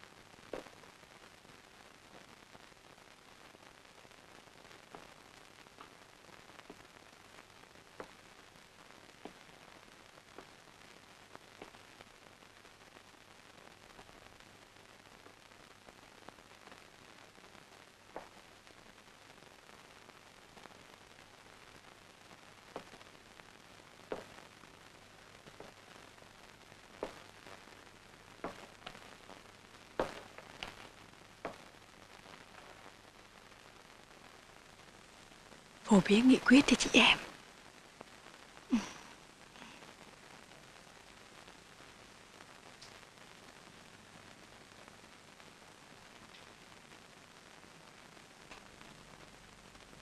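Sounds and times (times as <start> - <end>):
film soundtrack hiss: 0.0 - 50.0
faint clicks: 42.8 - 43.0.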